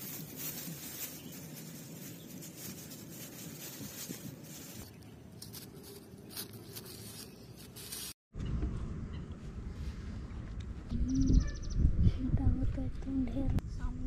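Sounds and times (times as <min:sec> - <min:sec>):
plastic bag rustling: 0:00.0 - 0:08.2
soft crackles: 0:00.0 - 0:08.2.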